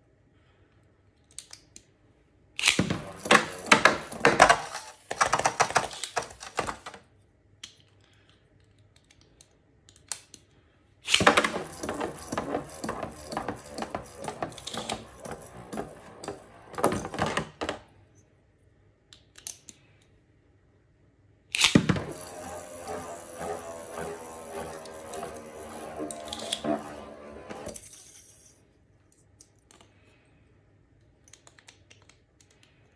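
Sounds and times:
spinning tops clattering: 2.6 - 6.5, 11.1 - 17.4, 21.6 - 28.6.

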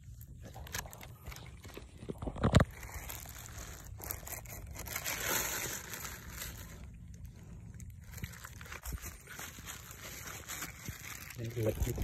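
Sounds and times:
dry leaves rustling and crackling: 2.6 - 12.0.

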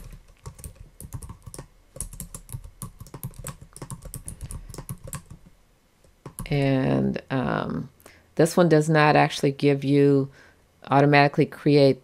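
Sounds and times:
typing on a computer keyboard: 0.0 - 6.6.

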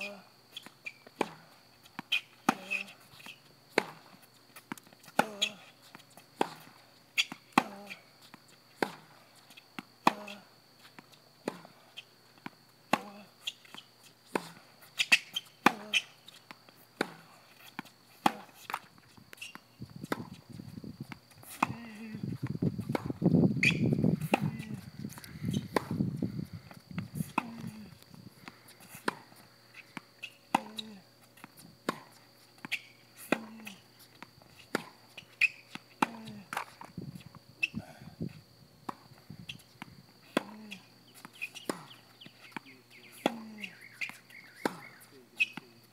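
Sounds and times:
shoe squeaks on court: 0.5 - 1.1, 1.9 - 4.0, 5.3 - 8.0, 13.4 - 14.1, 14.8 - 16.5, 17.5 - 20.4, 23.6 - 25.9, 28.9 - 33.4, 34.5 - 36.2, 39.5 - 39.8, 40.5 - 45.8
tennis ball struck by rackets: 3.7 - 4.0, 17.0 - 18.8, 22.9 - 26.0, 30.5 - 36.9, 40.3 - 40.6, 41.3 - 45.6
ball bouncing on hard court: 43.2 - 45.6.

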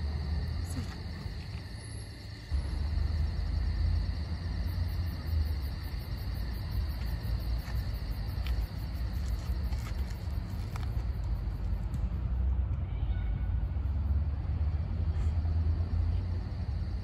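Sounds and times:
fast pulsing insect chirr: 0.0 - 11.6
insects chirring: 0.0 - 17.0.

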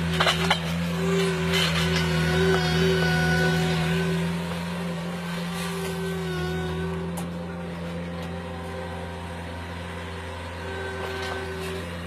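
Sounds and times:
diesel engine humming: 0.0 - 12.0.

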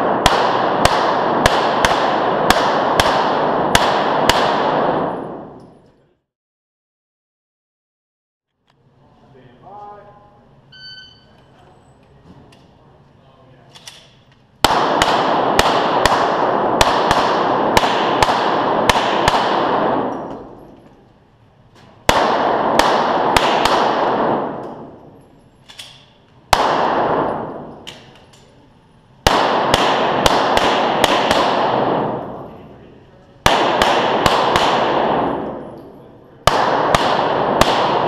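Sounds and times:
pistol shots echoing indoors: 0.0 - 6.0, 13.7 - 21.1, 21.8 - 38.0.

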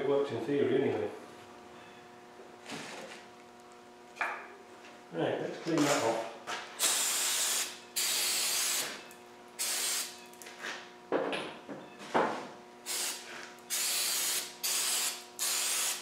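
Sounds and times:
aerosol spray can hissing bursts: 12.9 - 16.0.

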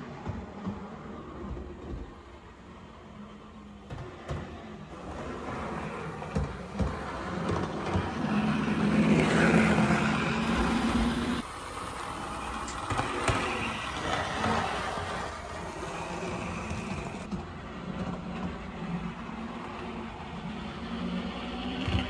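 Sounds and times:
model train motor humming: 4.9 - 22.0
wheels clicking on track: 4.9 - 22.0.

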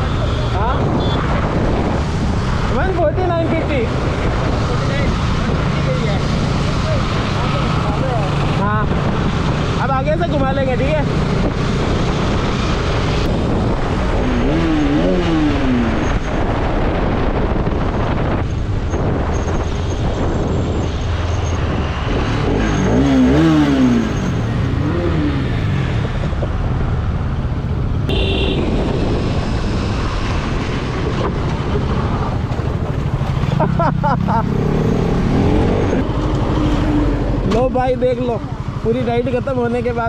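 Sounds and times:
wind and road noise: 0.0 - 40.0
motorcycle engine revving: 1.0 - 16.5, 21.6 - 26.4, 28.0 - 39.8.

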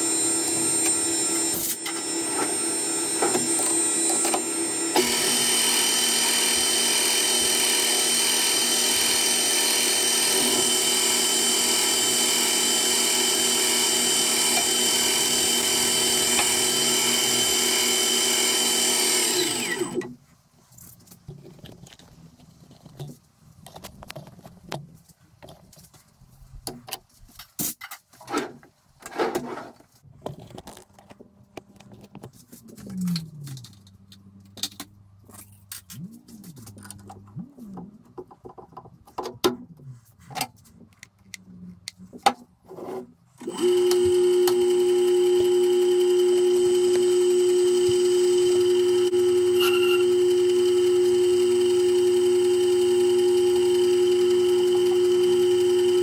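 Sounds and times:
lathe spindle whine: 0.0 - 20.1, 43.4 - 56.0.

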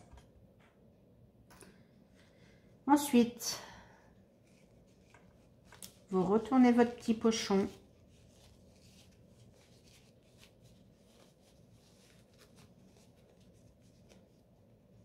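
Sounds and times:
faint fabric rustling: 4.1 - 15.0.

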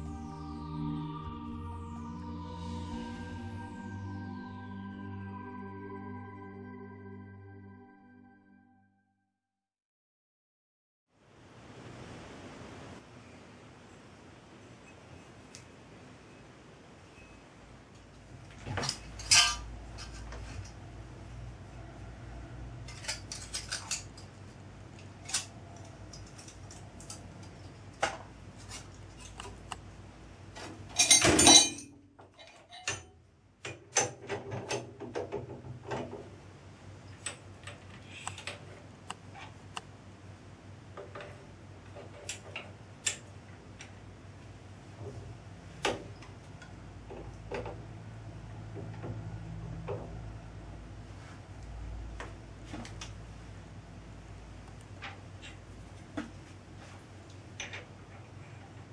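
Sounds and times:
metal parts clicking and knocking: 22.9 - 24.3.

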